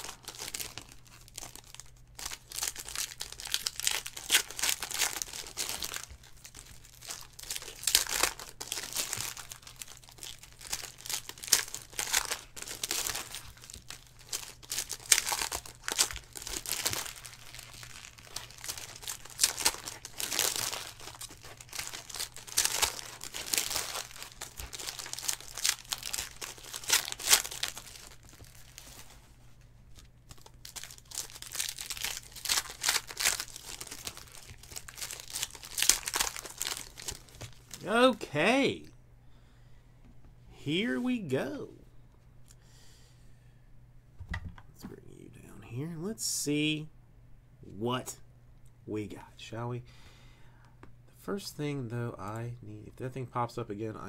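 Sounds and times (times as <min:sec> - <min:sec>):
foil wrappers crinkling and tearing: 0:00.0 - 0:29.3, 0:29.9 - 0:38.1
faint low hum: 0:00.0 - 0:54.0.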